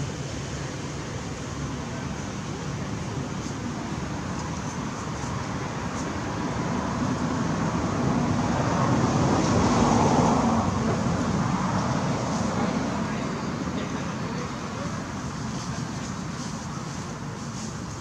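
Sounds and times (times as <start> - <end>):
road traffic rumble: 0.0 - 18.0
vehicle passing: 7.8 - 13.6.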